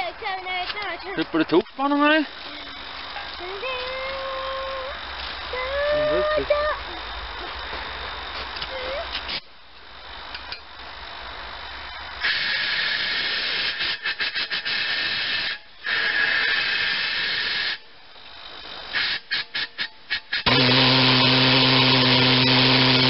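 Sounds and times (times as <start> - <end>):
compressed air hissing from hose: 12.2 - 23.0.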